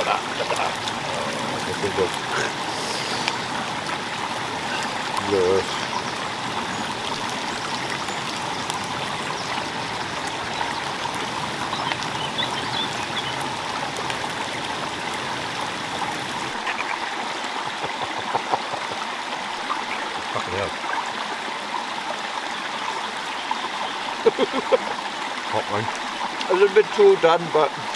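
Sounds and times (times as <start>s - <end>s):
stream running: 0.0s - 27.9s.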